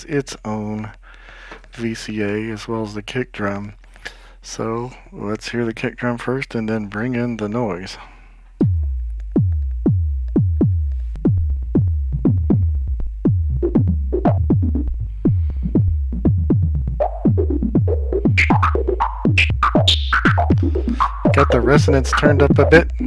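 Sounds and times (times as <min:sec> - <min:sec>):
synthesized kick drum thumps: 0:08.6 - 0:23.0
filtered noise bursts: 0:18.1 - 0:23.0.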